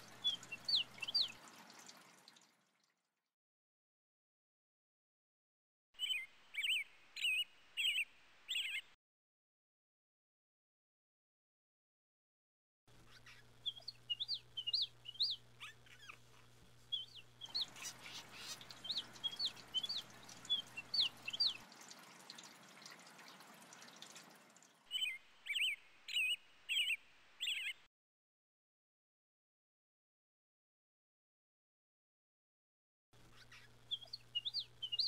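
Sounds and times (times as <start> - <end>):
birds chirping: 0.0 - 2.0, 6.0 - 9.0, 12.9 - 27.9, 33.2 - 35.0
faint outdoor hiss: 0.0 - 2.4, 6.0 - 9.0, 12.9 - 27.9, 33.2 - 35.0.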